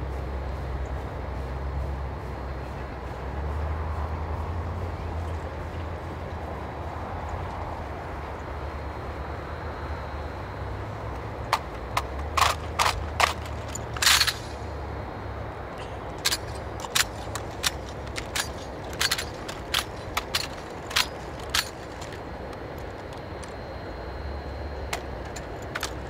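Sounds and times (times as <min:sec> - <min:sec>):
low steady rumble: 0:00.0 - 0:26.0
hands slapping rifles: 0:11.6 - 0:14.5.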